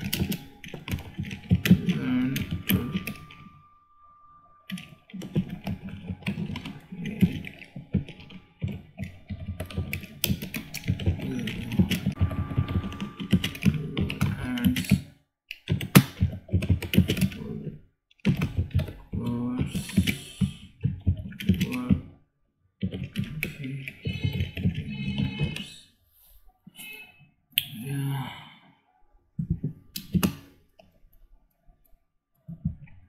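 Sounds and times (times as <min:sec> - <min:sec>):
typing on keyboard: 0:00.0 - 0:03.5, 0:04.6 - 0:22.1, 0:22.8 - 0:25.7, 0:29.4 - 0:31.0.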